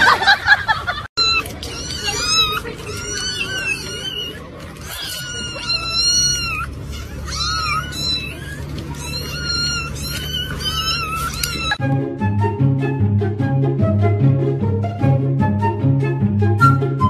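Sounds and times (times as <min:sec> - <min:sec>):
kittens meowing: 0:01.2 - 0:11.8.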